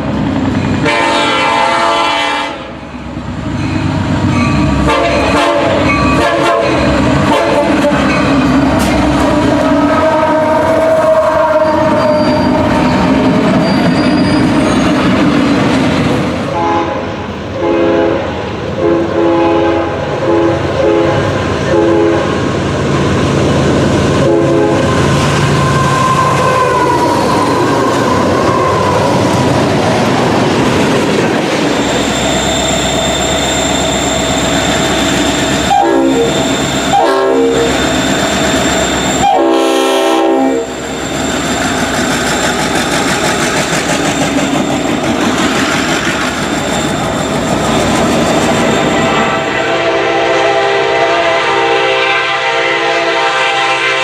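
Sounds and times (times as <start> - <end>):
train running noise: 0.0 - 54.0
train horn blasts: 0.8 - 2.8, 4.8 - 8.1, 9.4 - 12.8, 16.5 - 22.4, 24.2 - 25.1, 35.6 - 37.8, 39.1 - 40.8, 48.9 - 54.0.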